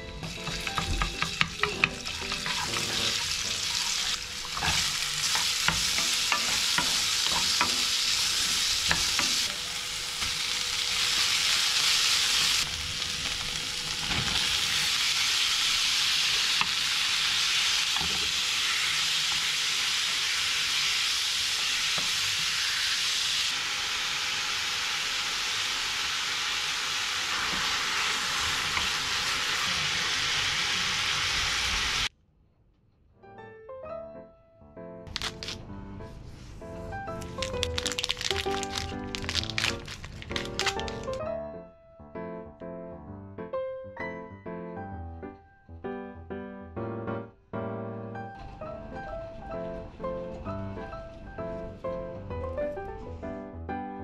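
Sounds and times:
stirring sounds: 0:00.0 - 0:09.6
food sizzling in a wok: 0:00.0 - 0:32.1, 0:37.2 - 0:41.2.

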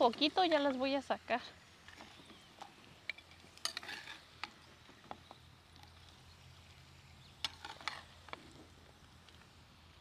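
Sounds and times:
metal spoon scraping clay plate: 0:03.6 - 0:04.3.

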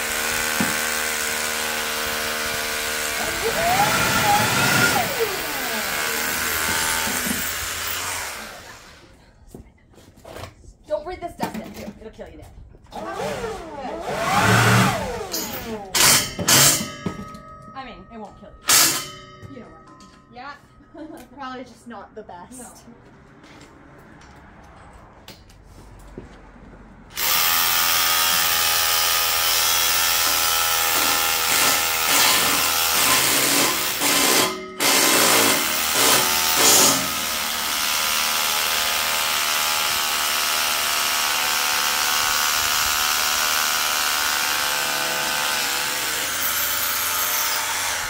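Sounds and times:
hammer drill boring into concrete: 0:00.0 - 0:09.0, 0:13.0 - 0:17.2, 0:27.2 - 0:48.0.

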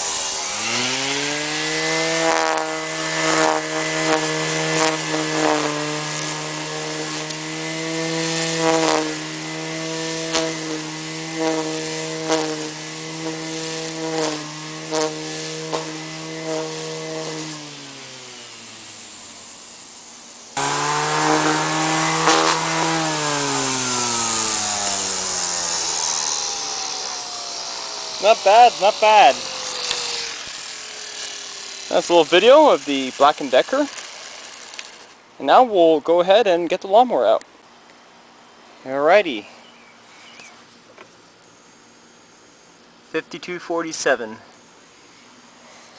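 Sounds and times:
electric string trimmer whining: 0:00.0 - 0:35.7
trimmer line ticking on grass: 0:02.2 - 0:07.4, 0:10.2 - 0:17.4.

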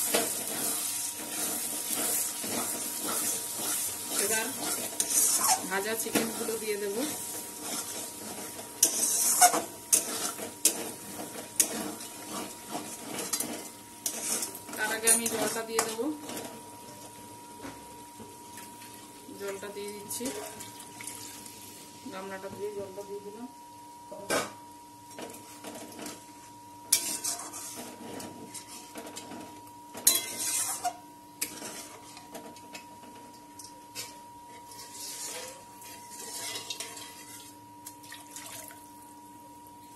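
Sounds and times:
metal spatula scraping a pan: 0:00.0 - 0:15.9, 0:26.9 - 0:29.2, 0:30.0 - 0:32.3, 0:34.0 - 0:37.5.

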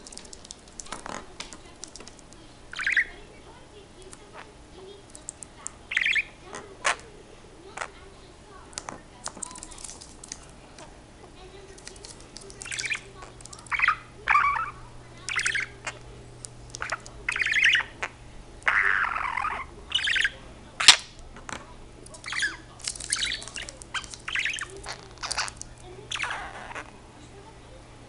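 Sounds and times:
budgerigar chattering and chirping: 0:02.7 - 0:03.2, 0:05.9 - 0:07.1, 0:12.6 - 0:16.0, 0:16.7 - 0:21.1, 0:22.2 - 0:26.9.

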